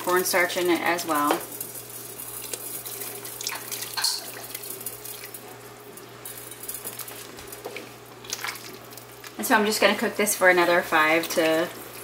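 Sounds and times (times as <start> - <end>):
milk pouring into soup: 8.2 - 9.4.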